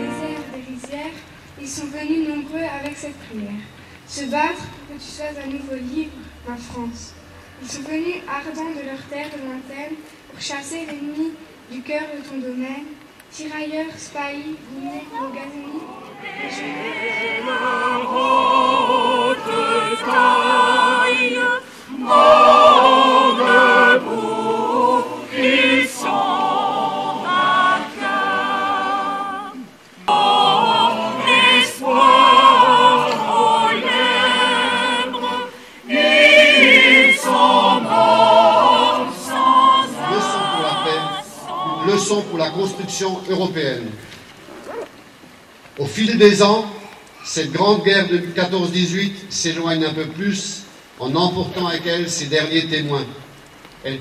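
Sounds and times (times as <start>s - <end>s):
crowd singing in chorus: 0.0s - 0.7s, 15.2s - 43.3s.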